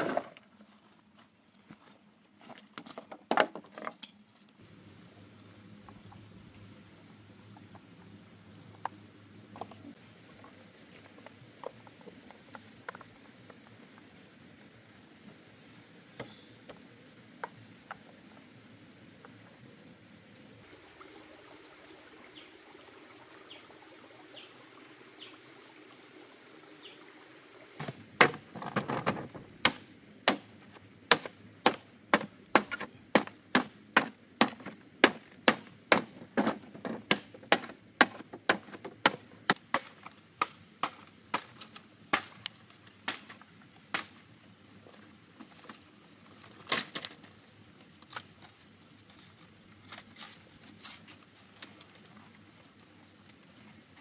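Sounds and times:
faint high-pitched drone: 20.6s - 27.8s
machete chopping bamboo: 27.8s - 28.5s, 29.6s - 30.5s, 31.1s - 36.2s, 37.1s - 42.4s, 43.1s - 44.2s.

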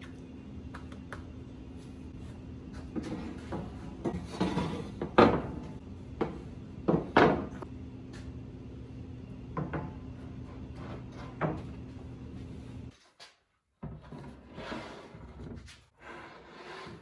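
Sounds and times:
steady low hum: 0.0s - 12.9s.

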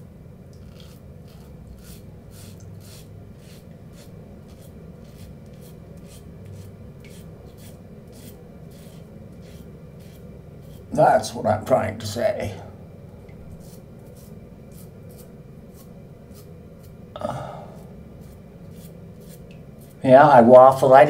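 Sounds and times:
steady low hum: 0.0s - 21.0s
razor scraping stubble: 0.6s - 11.0s, 13.5s - 17.0s, 17.8s - 20.1s.

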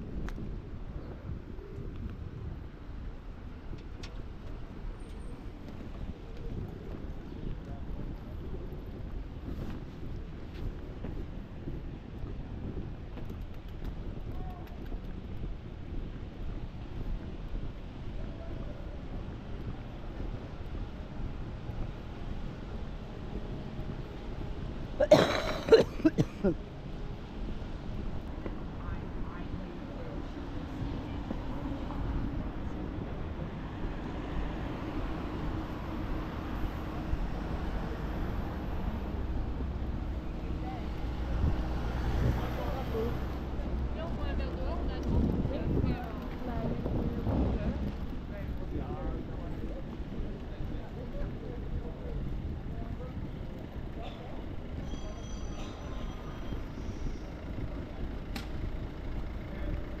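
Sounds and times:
low traffic rumble: 0.0s - 60.0s
sharp click: 58.3s - 58.6s.

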